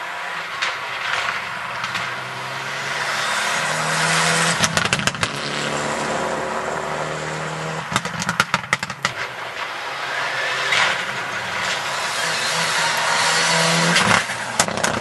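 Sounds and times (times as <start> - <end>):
rally car engine full throttle: 0.0 - 15.0
exhaust pops and cracks: 0.6 - 2.2, 4.6 - 5.3, 7.9 - 9.7, 14.0 - 15.0
car engine accelerating: 0.6 - 15.0.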